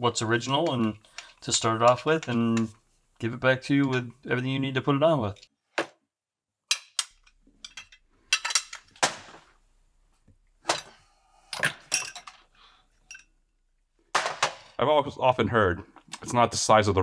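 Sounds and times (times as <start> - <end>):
small metal parts clinking: 6.7 - 9.0, 10.7 - 13.3.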